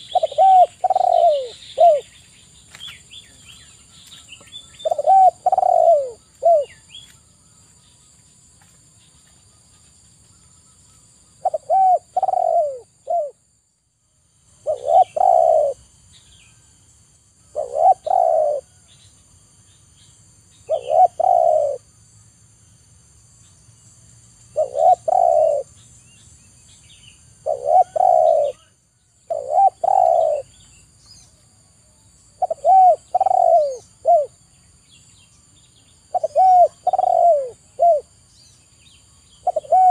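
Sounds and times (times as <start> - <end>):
dove cooing: 0.0 - 2.2, 4.8 - 6.8, 11.4 - 13.4, 14.6 - 15.9, 17.5 - 18.8, 20.7 - 21.9, 24.5 - 25.7, 27.4 - 28.7, 29.3 - 30.6, 32.4 - 34.4, 36.1 - 38.1, 39.4 - 39.9.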